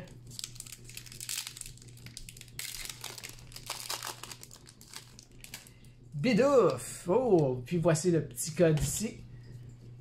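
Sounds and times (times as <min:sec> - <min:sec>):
foil wrapper crinkling: 0:00.0 - 0:05.9.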